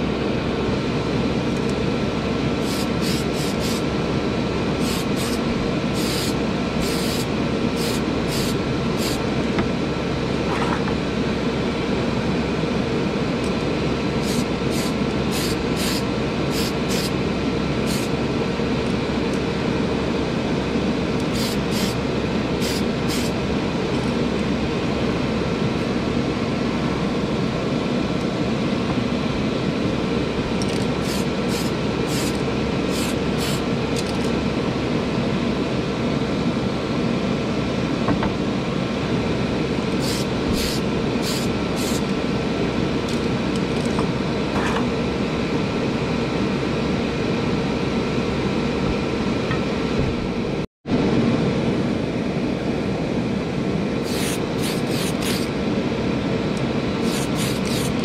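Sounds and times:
exhaust fan whining: 0:00.0 - 0:58.0
paint spray hisses: 0:02.6 - 0:03.9, 0:04.8 - 0:09.2, 0:14.2 - 0:17.1, 0:17.8 - 0:18.1, 0:21.3 - 0:22.0, 0:22.6 - 0:23.4, 0:31.0 - 0:32.3, 0:32.9 - 0:33.6, 0:40.0 - 0:42.1, 0:54.0 - 0:55.5, 0:57.0 - 0:58.0.

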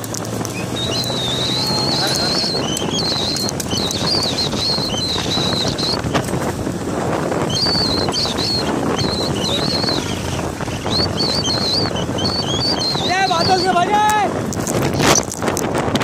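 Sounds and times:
motorcycle engine running: 0:00.0 - 0:16.0
wind rushing over microphone: 0:00.0 - 0:16.0
wavering high-pitched whistle: 0:00.5 - 0:06.0, 0:07.5 - 0:13.8.

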